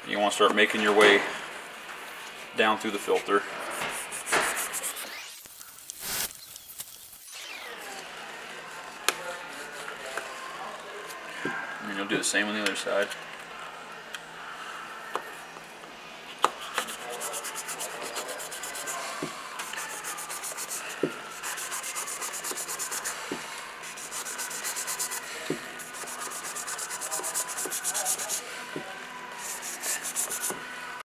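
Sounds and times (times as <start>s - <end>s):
knife sawing through filter: 23.9s - 28.5s.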